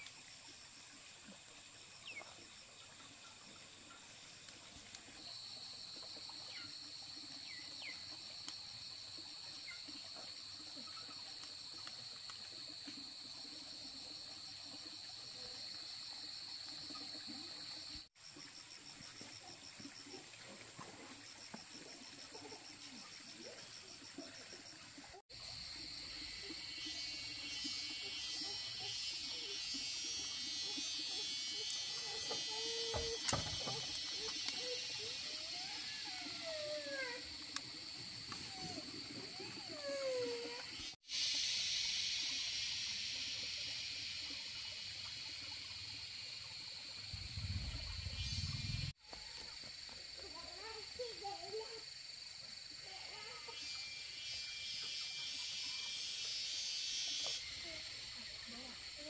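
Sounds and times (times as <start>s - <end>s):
dense insect buzz: 0.0s - 59.0s
insects chirring: 0.0s - 59.0s
faster pulsing insect trill: 21.2s - 38.6s, 39.2s - 49.0s, 50.2s - 59.0s.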